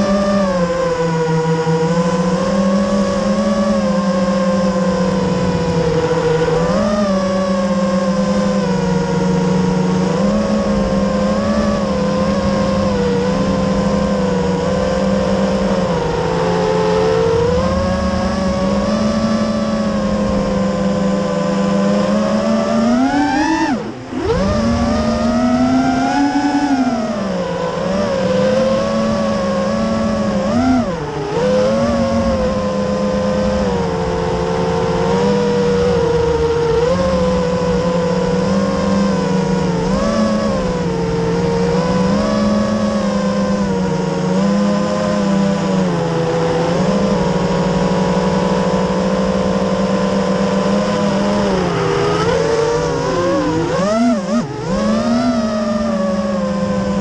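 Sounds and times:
quadcopter motors buzzing whine: 0.0 - 57.0.

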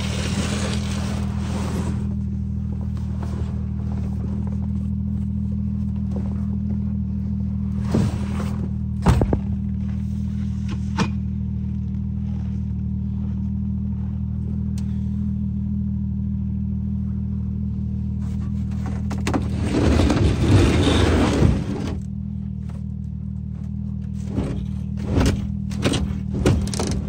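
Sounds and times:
plastic sled scraping across truck bed: 0.0 - 2.2, 7.7 - 10.8, 18.2 - 22.1
vehicle engine idling: 0.0 - 19.8, 21.6 - 27.0.

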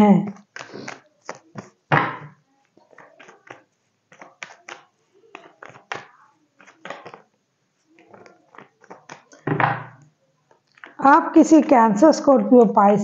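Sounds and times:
cards being shuffled: 0.3 - 9.6, 10.5 - 11.0.

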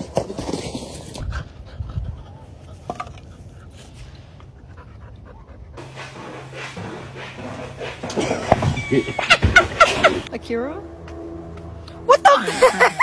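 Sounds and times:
dog panting: 4.6 - 8.8.

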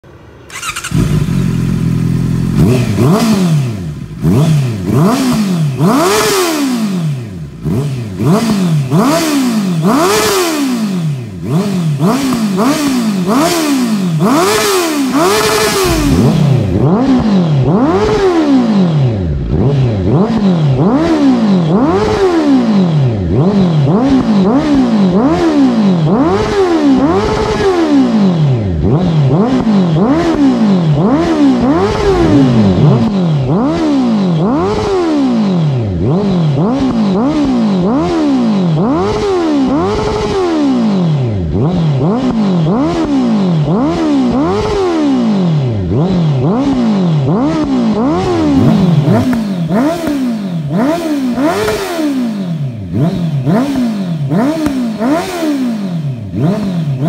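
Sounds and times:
motorcycle engine revving: 0.0 - 57.0.

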